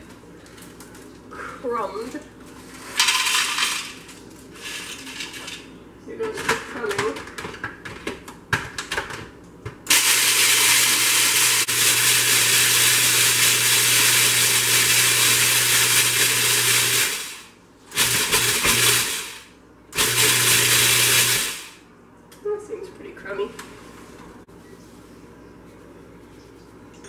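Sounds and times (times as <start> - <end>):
food processor grinding: 9.9 - 21.8.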